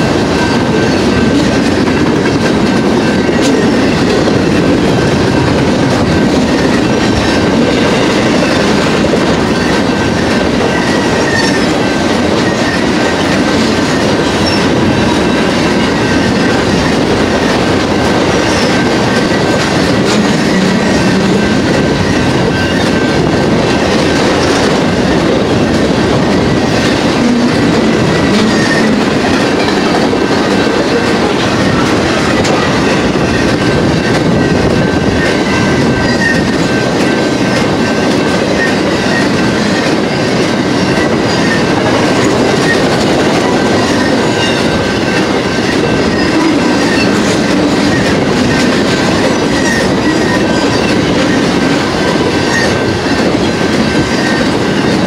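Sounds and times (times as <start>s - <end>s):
freight train wheels rumbling: 0.0s - 55.0s.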